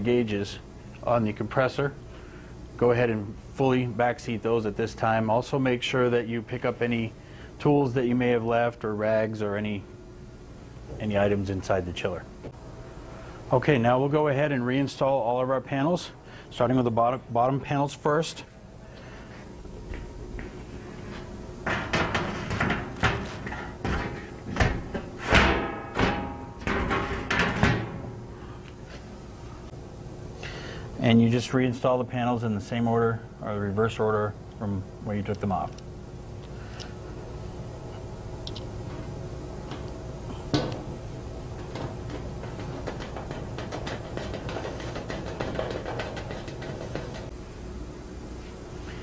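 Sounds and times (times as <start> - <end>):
steady background hum: 0.0 - 49.0
metal panel knocking and rattling: 21.6 - 28.3, 41.6 - 47.3.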